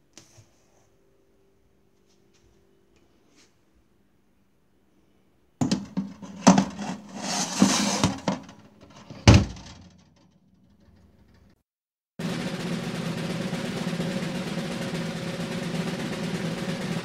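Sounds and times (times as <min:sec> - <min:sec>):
metal tray clattering and scraping: 0:05.6 - 0:09.9
oven door thump: 0:05.6 - 0:09.9.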